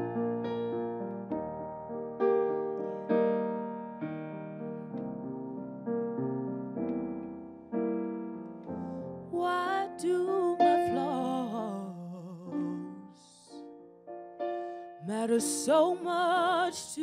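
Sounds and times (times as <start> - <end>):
electric piano chords: 0.0 - 17.0
woman singing soulfully: 9.3 - 13.7, 15.0 - 17.0.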